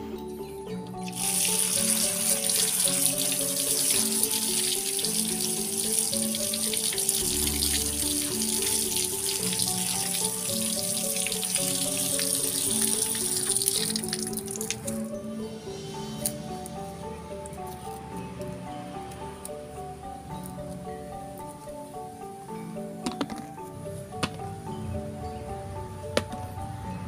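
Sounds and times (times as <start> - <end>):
background music: 0.0 - 27.0
tap water pouring and splashing: 1.0 - 15.0.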